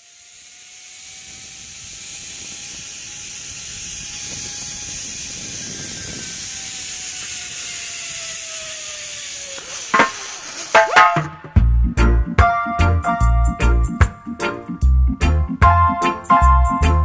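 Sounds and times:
zip-line trolley hissing and whining: 0.0 - 11.2.

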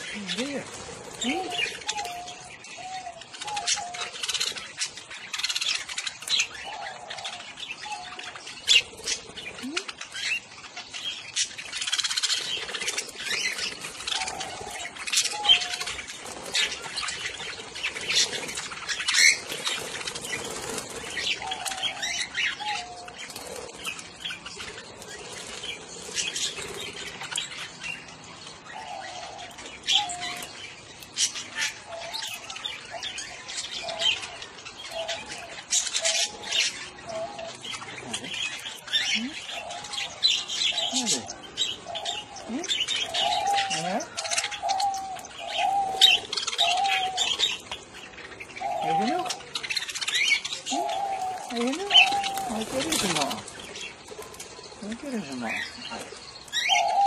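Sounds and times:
budgerigars chirping and squawking: 0.0 - 57.0
wings flapping: 11.8 - 27.6, 51.4 - 55.2.

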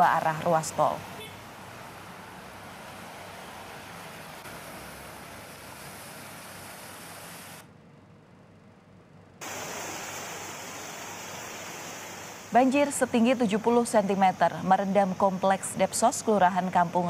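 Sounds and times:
floodwater rushing: 1.4 - 7.6, 9.4 - 12.7.

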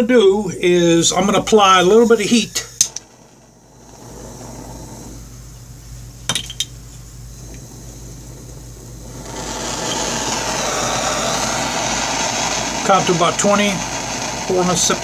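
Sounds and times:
gas hissing from torch: 0.0 - 15.0
torch flame rushing: 0.6 - 6.2, 6.9 - 15.0
torch igniter clicks: 2.7 - 4.0.

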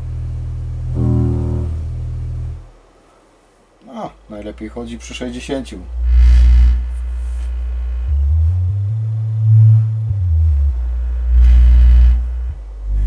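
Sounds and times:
subwoofer low test tone: 0.0 - 2.8, 5.8 - 13.0.

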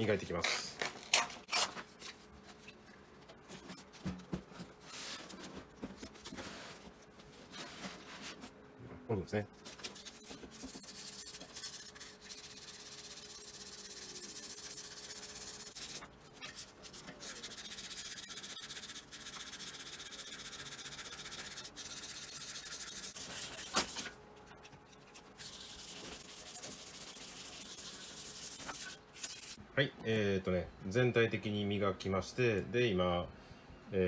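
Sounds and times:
sandpaper scrubbing on metal: 9.9 - 24.1, 25.4 - 29.6.

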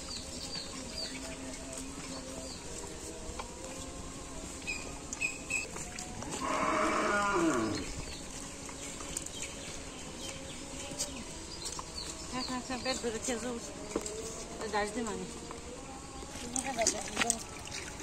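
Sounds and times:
cow mooing: 6.3 - 7.9.

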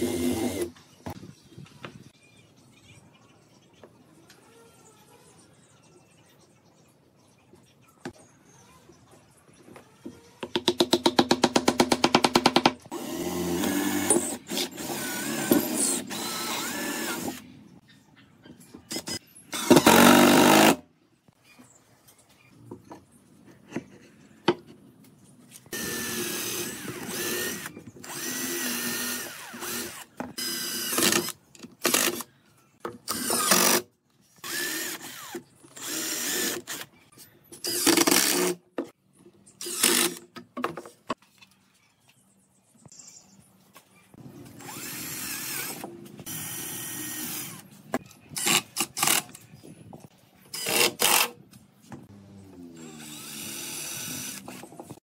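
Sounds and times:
cordless drill driving screws: 13.0 - 17.4, 18.9 - 20.8, 25.7 - 32.2, 33.1 - 33.8, 52.8 - 54.7.

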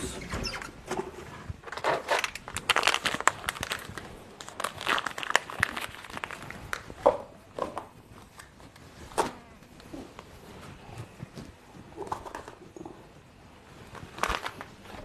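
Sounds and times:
kitten crunching dry kibble: 1.7 - 7.0, 13.8 - 15.0.

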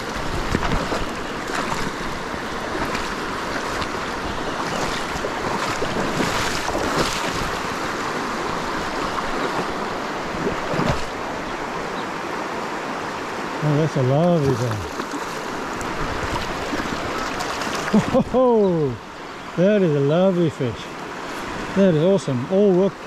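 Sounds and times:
wind noise on microphone: 0.0 - 9.6
fish splashing: 0.0 - 11.4, 14.4 - 18.2
stream rushing water: 0.0 - 23.0.

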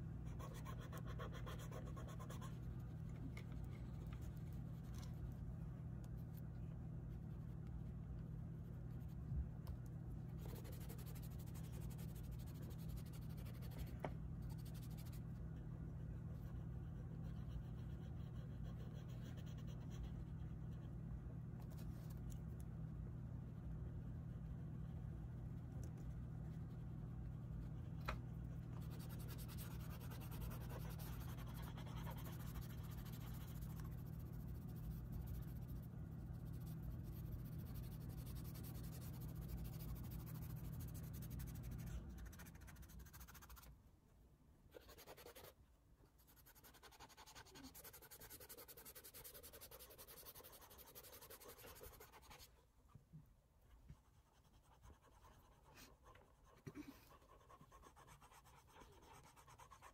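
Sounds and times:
steady low hum: 0.0 - 59.9
pastel scratching on paper: 0.3 - 2.9, 10.4 - 15.3, 28.7 - 43.7, 44.7 - 45.6, 46.2 - 52.6, 54.0 - 59.9.

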